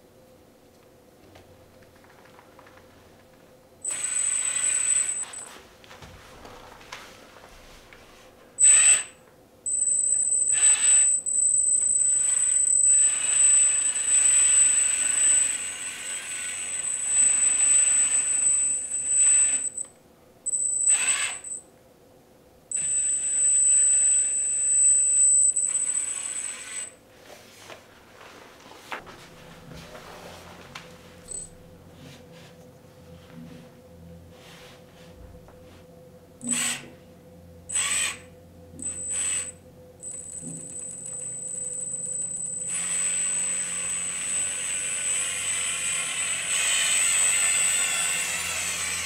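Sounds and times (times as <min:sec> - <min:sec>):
electric hydraulic pump whining: 0:10.4 - 0:19.9, 0:37.7 - 0:49.0.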